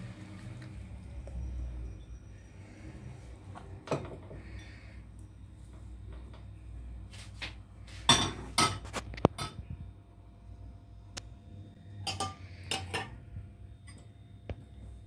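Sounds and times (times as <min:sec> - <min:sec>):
utensils and dishes clinking: 0:08.0 - 0:09.6, 0:12.0 - 0:13.2.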